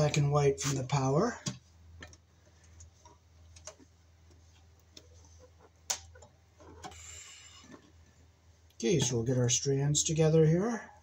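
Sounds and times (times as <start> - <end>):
copper wires rustling and clicking: 1.4 - 8.0.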